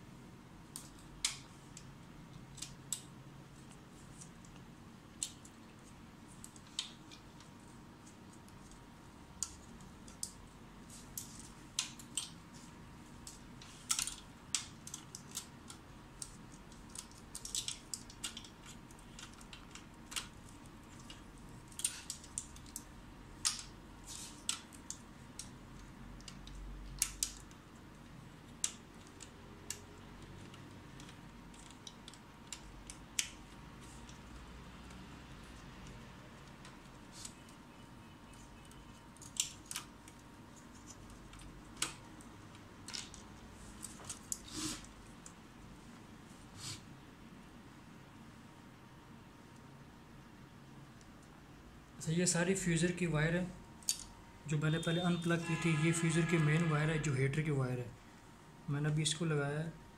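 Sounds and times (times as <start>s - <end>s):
plastic parts clicking: 0.6s - 37.6s, 38.3s - 44.5s.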